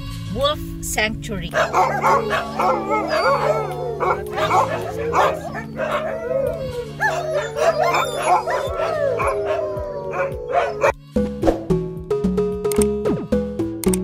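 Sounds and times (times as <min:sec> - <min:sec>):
dogs barking and yipping: 0:01.5 - 0:11.0
dogs howling: 0:01.5 - 0:11.0.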